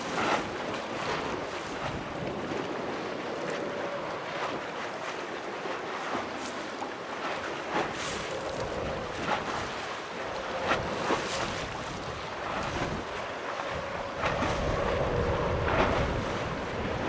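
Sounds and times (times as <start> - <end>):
distant jet engines rumbling: 0.0 - 17.0
wind gusting on microphone: 0.0 - 17.0.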